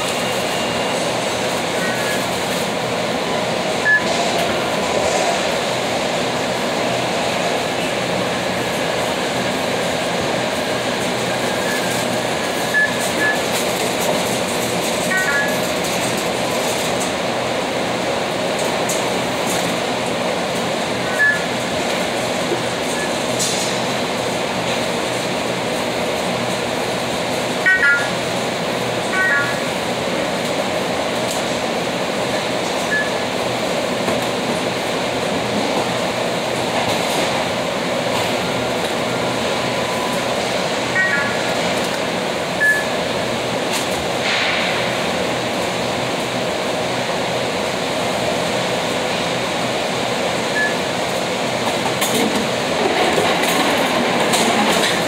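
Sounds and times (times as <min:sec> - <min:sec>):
steady machine noise: 0:00.0 - 0:55.0
short electronic beeps: 0:03.8 - 0:04.2, 0:12.7 - 0:13.5, 0:15.1 - 0:15.6, 0:21.1 - 0:21.6, 0:27.6 - 0:28.2, 0:29.1 - 0:29.7, 0:32.9 - 0:33.2, 0:40.9 - 0:41.5, 0:42.6 - 0:43.0, 0:50.5 - 0:50.9.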